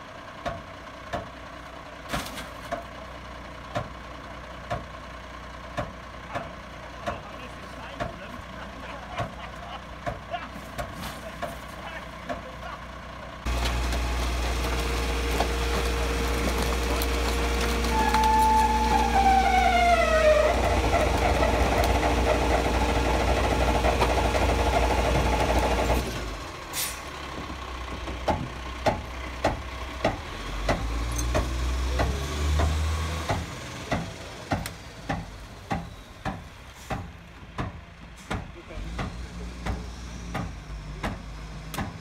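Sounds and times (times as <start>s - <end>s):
truck engine rumble: 0.0s - 42.0s
compactor squeal: 13.5s - 25.8s.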